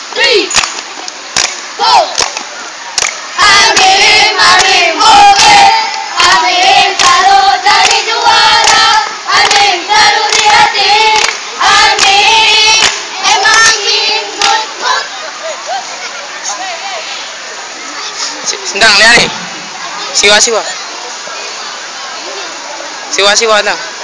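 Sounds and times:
sharp claps: 0.5s - 13.8s, 14.4s - 14.6s
group chanting in unison: 3.4s - 15.1s.

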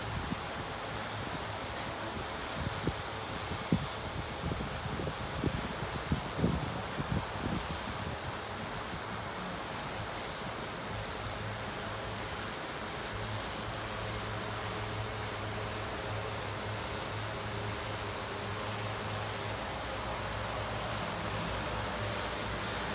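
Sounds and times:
rushing hiss of prop wash: 0.0s - 22.9s.

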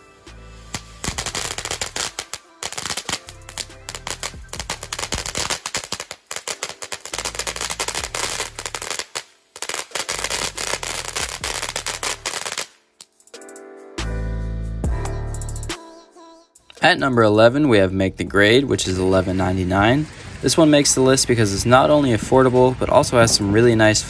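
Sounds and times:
background music: 0.0s - 24.0s
fountain firework crackling: 0.6s - 12.8s, 18.5s - 24.0s.

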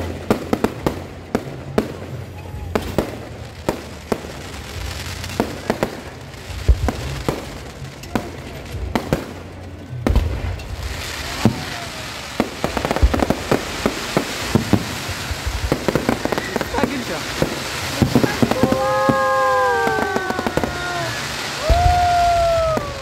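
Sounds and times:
fireworks bursting with sharp bangs: 0.0s - 23.0s.

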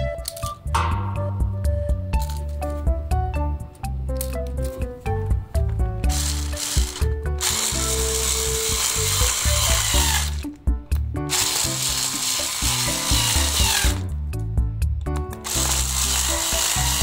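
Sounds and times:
background music: 0.0s - 17.0s
electric screwdriver running: 6.1s - 10.4s, 11.3s - 14.0s, 15.4s - 17.0s.

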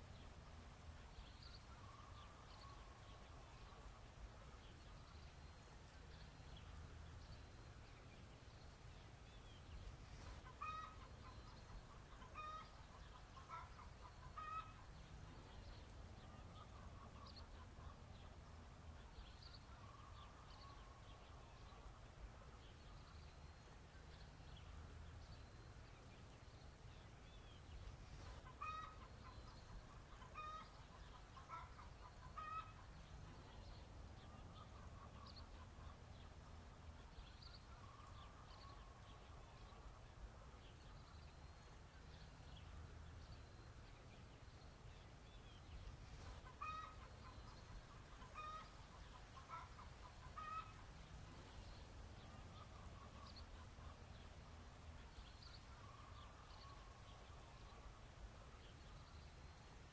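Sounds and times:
chickens clucking: 10.4s - 14.9s, 28.3s - 32.9s, 46.2s - 50.9s.

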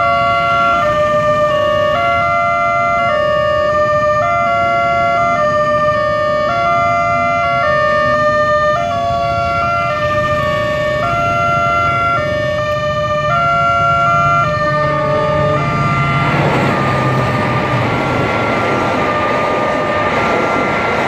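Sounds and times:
faint idling traffic: 4.4s - 21.0s.

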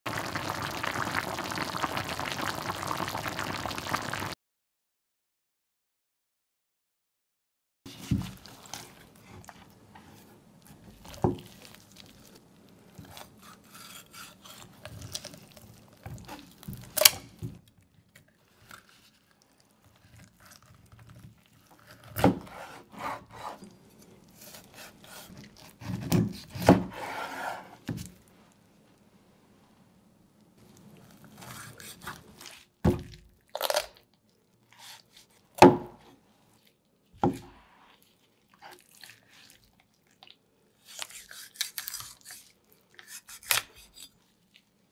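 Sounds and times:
knife slicing through meat: 13.1s - 15.4s, 24.4s - 27.8s, 31.4s - 32.7s, 40.8s - 44.2s.

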